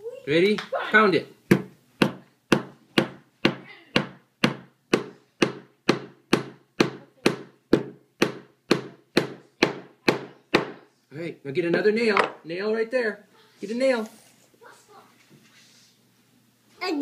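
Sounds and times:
hammer driving a nail into wood: 1.5s - 10.8s.

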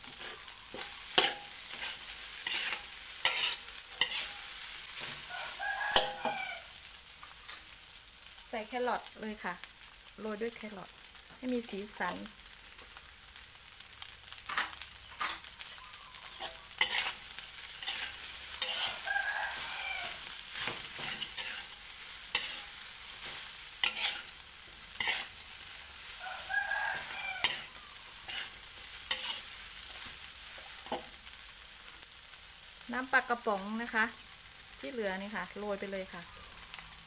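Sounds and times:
metal spatula scraping a wok: 0.0s - 7.8s, 14.4s - 31.2s
frying sizzle: 0.0s - 37.0s
rooster crowing: 5.1s - 6.8s, 18.6s - 20.3s, 26.1s - 28.3s.

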